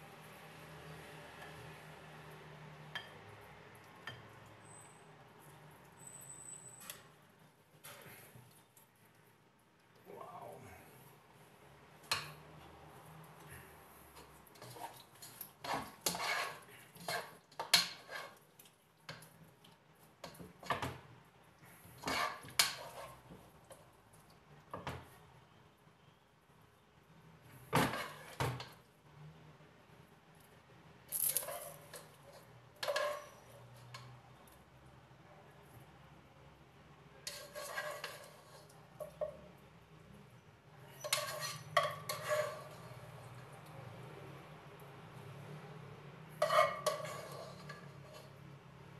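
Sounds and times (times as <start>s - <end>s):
utensil scraping in cooking pot: 13.0s - 19.4s, 21.6s - 23.7s, 27.6s - 28.8s, 31.4s - 34.2s, 37.2s - 39.5s, 40.8s - 43.6s, 46.3s - 48.6s.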